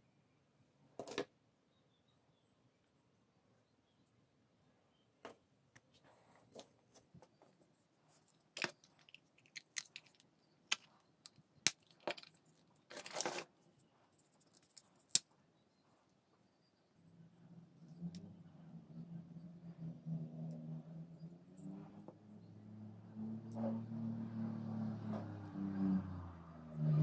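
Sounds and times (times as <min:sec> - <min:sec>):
plastic scraping: 0:11.9 - 0:13.6.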